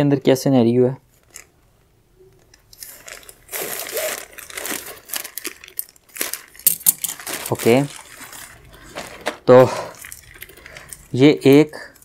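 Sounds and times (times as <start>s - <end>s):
plastic mailer bag crinkling: 2.7s - 12.0s.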